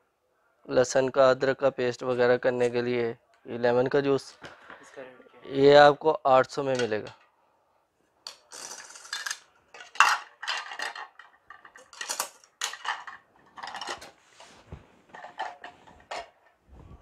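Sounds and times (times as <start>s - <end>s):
plastic parts clattering together: 8.2s - 14.2s, 15.1s - 16.6s.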